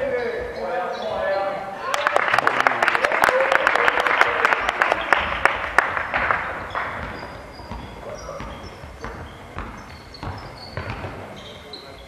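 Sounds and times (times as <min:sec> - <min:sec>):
spectators clapping: 0:01.8 - 0:07.3
sneakers squeaking on court floor: 0:06.0 - 0:12.0.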